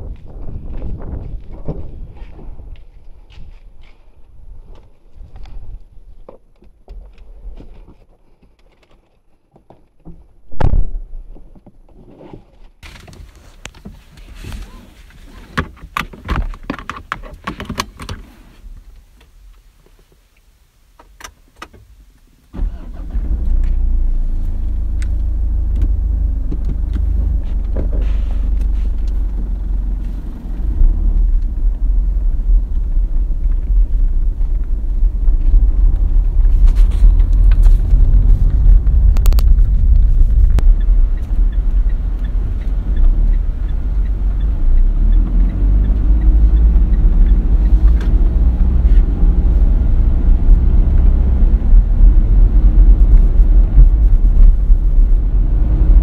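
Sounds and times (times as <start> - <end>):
loud thump: 10.5 - 11.1
diesel engine starting and idling: 22.5 - 36.4.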